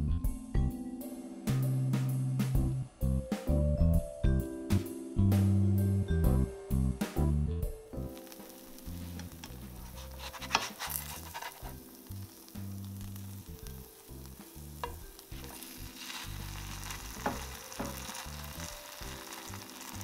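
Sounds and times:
butter sizzling in a skillet: 0:08.0 - 0:20.0.

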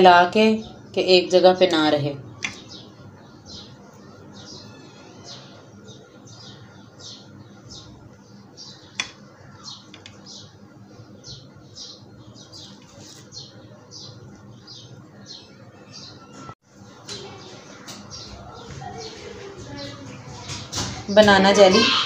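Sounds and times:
faint background hum: 0:00.0 - 0:22.0
small bird chirping: 0:02.3 - 0:16.5.

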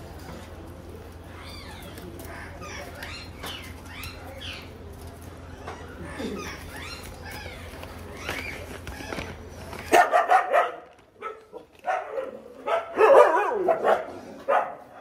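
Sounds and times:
dogs whining and yipping: 0:01.3 - 0:04.7, 0:05.5 - 0:10.0.

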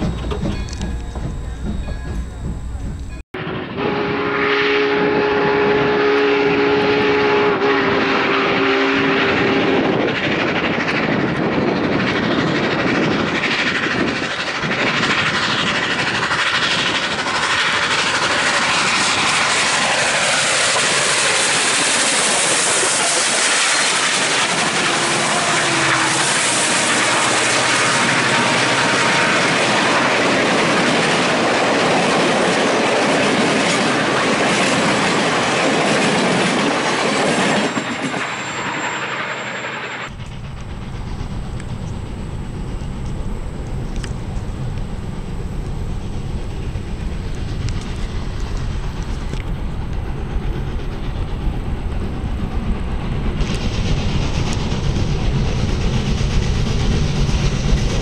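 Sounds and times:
wheels clicking over rail joints: 0:00.0 - 0:03.2
train passing loudly: 0:00.0 - 0:58.0
steam locomotive whistle: 0:03.0 - 0:10.0, 0:18.0 - 0:30.4.

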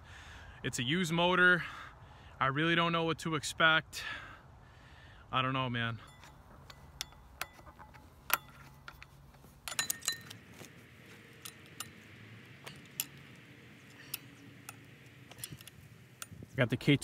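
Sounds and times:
metal socket clinking on bolts: 0:06.1 - 0:16.5.

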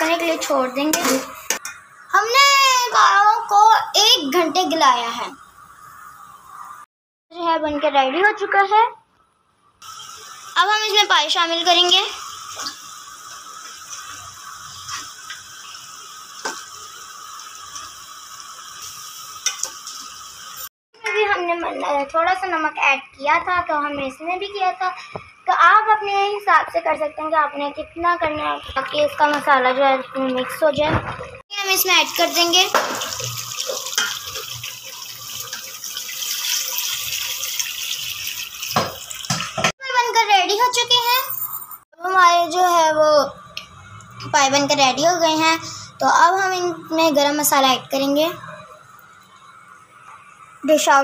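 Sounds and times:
gravy simmering with hiss and pops: 0:09.1 - 0:39.8, 0:43.2 - 0:51.0
liquid pouring into a pot: 0:32.0 - 0:39.4.

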